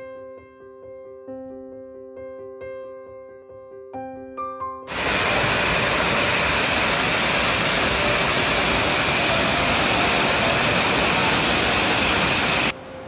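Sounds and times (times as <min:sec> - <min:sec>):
waterfall pouring onto rocks: 0:04.9 - 0:12.7.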